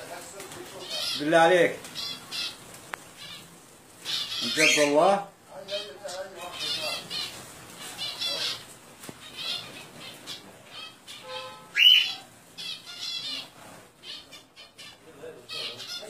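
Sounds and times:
birds flapping wings: 0.0s - 5.0s, 5.6s - 10.7s, 12.3s - 14.0s
small birds squawking: 0.1s - 16.0s
loud shrill bird call: 3.2s - 5.0s, 9.3s - 16.0s.

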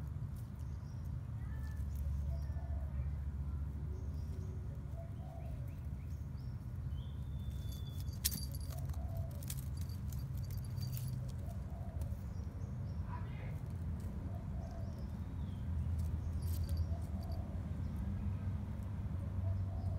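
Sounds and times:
cat collar bell jingling: 7.5s - 11.5s, 16.0s - 17.4s.

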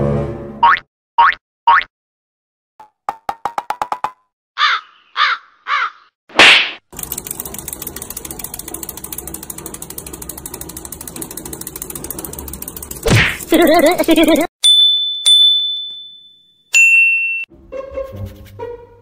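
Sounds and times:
toy mechanism clicking rattle: 6.9s - 13.9s.

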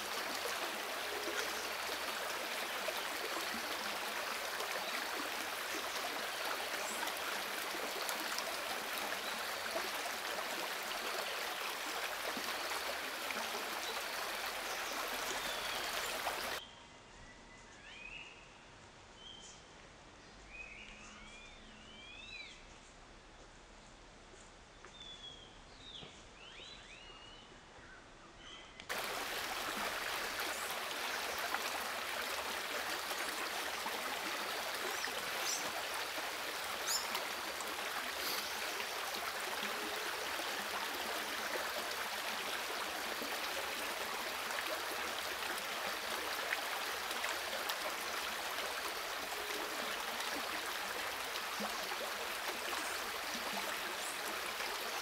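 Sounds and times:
steady rushing water: 0.0s - 16.6s, 28.9s - 55.0s.

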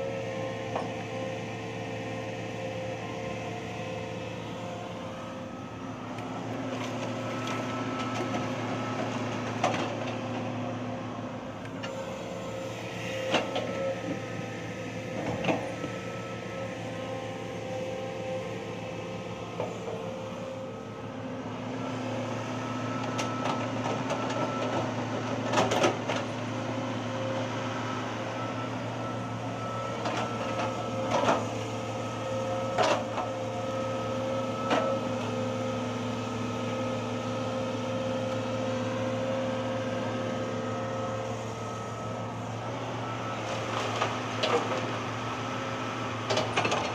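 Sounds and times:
heavy diesel machinery running: 0.0s - 46.9s.

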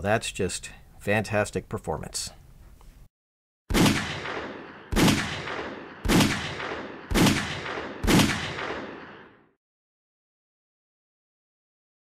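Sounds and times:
pistol shots: 3.7s - 9.5s.

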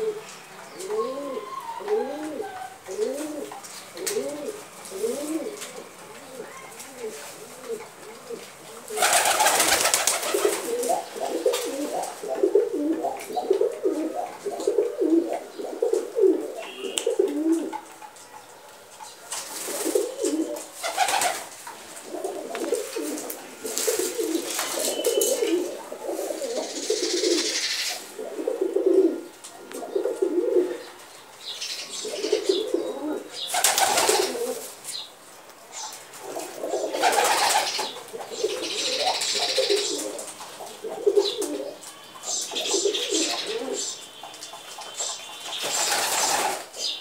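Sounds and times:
pigeons cooing: 0.0s - 47.0s
rustling: 2.0s - 15.2s, 18.9s - 31.5s.

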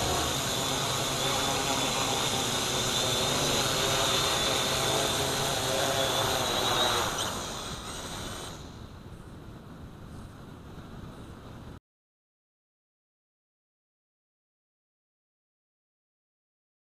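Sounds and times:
quadcopter motors whining: 0.0s - 8.8s.

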